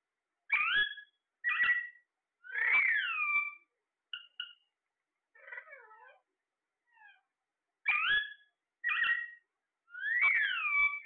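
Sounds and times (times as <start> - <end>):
parakeets calling: 0.5 - 4.7, 5.4 - 6.3, 7.8 - 11.0.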